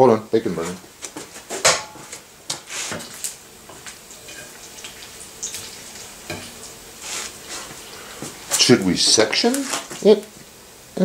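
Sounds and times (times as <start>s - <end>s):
bacon sizzling in a pan: 0.6s - 11.0s.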